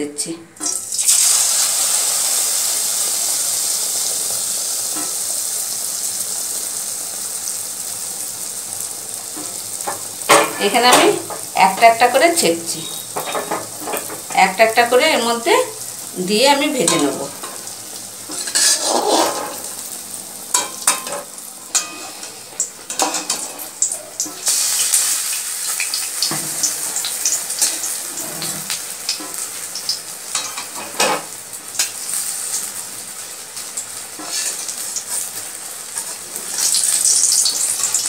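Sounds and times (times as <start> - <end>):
bread frying in oil: 0.6 - 38.0
spatula scraping pan: 18.3 - 19.7, 21.7 - 23.7, 34.2 - 35.3.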